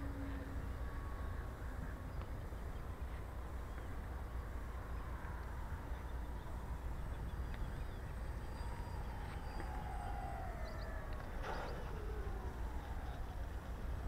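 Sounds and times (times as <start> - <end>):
low rumble: 0.0 - 14.0
model plane propellers whining: 5.9 - 14.0.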